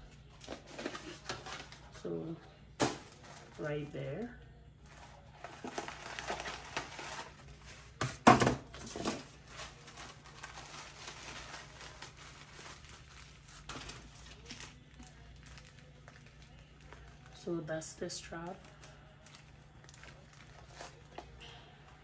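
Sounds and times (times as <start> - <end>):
paper packaging rustling: 0.0 - 2.0, 2.8 - 17.4, 18.2 - 22.0
sharp paper crackle: 4.8 - 8.0, 8.8 - 17.4, 18.4 - 22.0.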